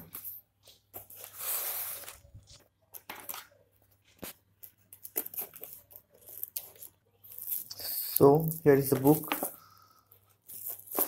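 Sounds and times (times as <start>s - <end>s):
scissors tearing through tape: 10.5s - 11.0s.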